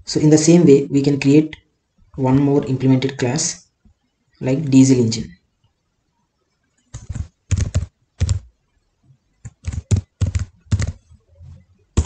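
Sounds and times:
typing on computer keyboard: 0:06.9 - 0:08.5, 0:09.4 - 0:11.1.

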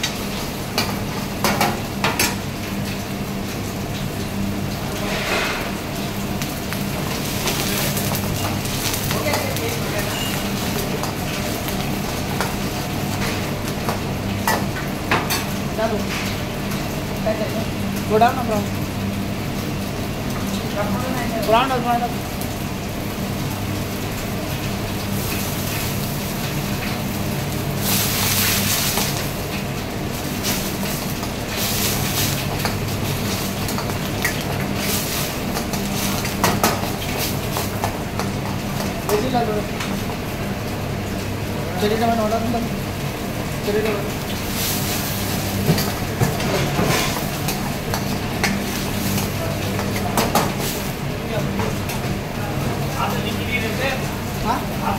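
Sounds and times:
butter sizzling in a frying pan: 0:00.0 - 0:54.9
low machine hum: 0:00.0 - 0:54.9
metal utensil scraping a pan: 0:05.0 - 0:05.8.

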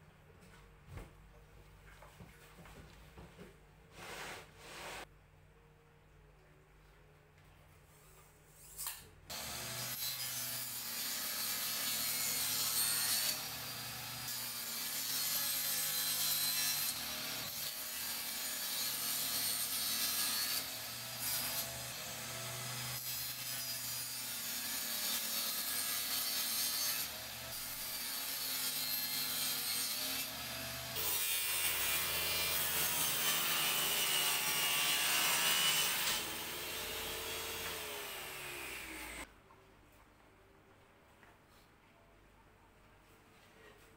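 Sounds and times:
table saw cutting plywood: 0:09.3 - 0:39.2.

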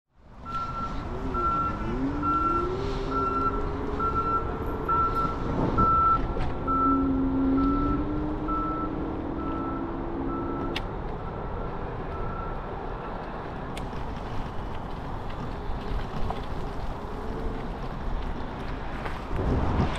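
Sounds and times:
wind and road noise: 0:00.1 - 0:19.9
vehicle reversing alarm beeping: 0:00.4 - 0:11.4, 0:12.1 - 0:12.7.

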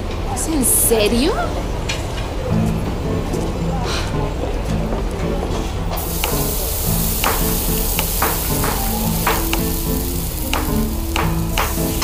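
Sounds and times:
spatula clicks on pan: 0:06.0 - 0:09.8, 0:10.4 - 0:12.0
meat sizzling in a frying pan: 0:06.0 - 0:12.0.

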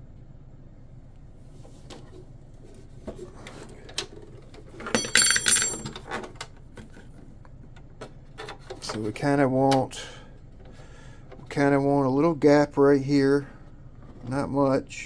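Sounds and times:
small metal parts clicking: 0:04.9 - 0:06.0.

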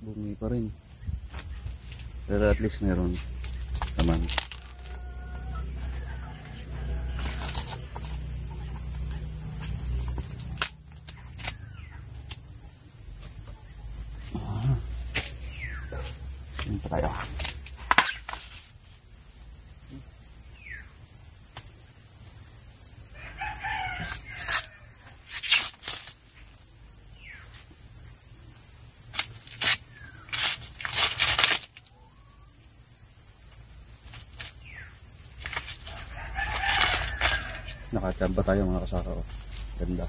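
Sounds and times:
high-pitched insect chorus: 0:00.0 - 0:40.0
rooster crowing: 0:04.5 - 0:09.6, 0:23.1 - 0:25.2, 0:35.8 - 0:38.4
sharp crackles: 0:24.3 - 0:26.4, 0:29.1 - 0:31.9.

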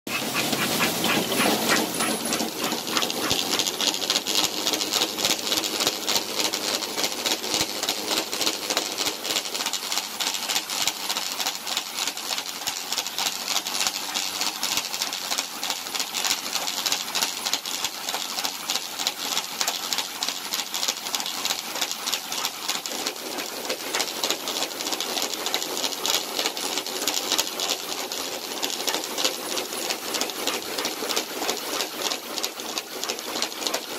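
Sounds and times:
treadmill belt and rollers clattering: 0:00.1 - 0:33.9.

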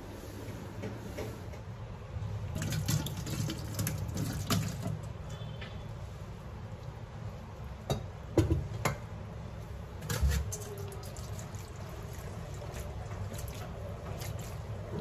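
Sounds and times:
water draining into sink: 0:02.5 - 0:05.1.

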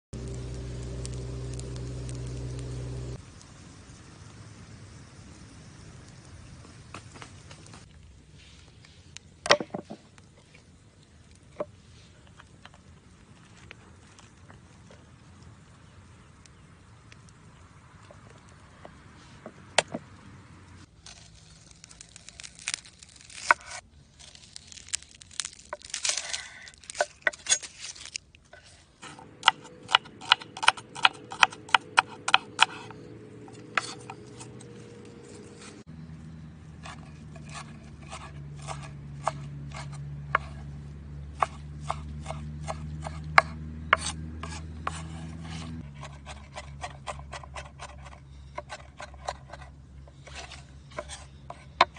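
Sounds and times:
knife chopping on wooden board: 0:29.4 - 0:32.9, 0:41.4 - 0:49.1.

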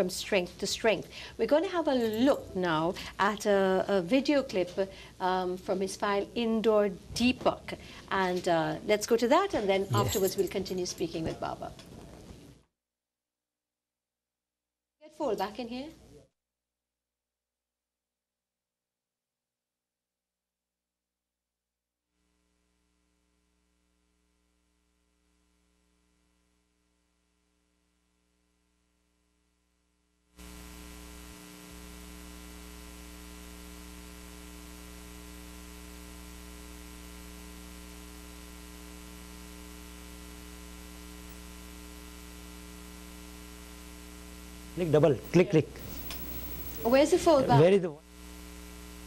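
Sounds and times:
electrical mains hum: 0:30.4 - 0:49.0.

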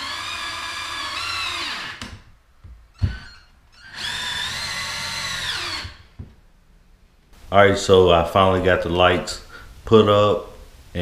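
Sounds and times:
cordless drill running into wood: 0:00.0 - 0:02.0, 0:03.8 - 0:06.0.

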